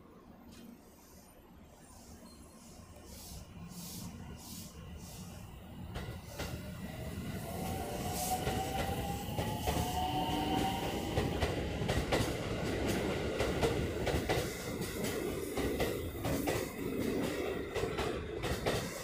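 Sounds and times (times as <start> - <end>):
train wheels rumbling and clacking: 5.9 - 19.0.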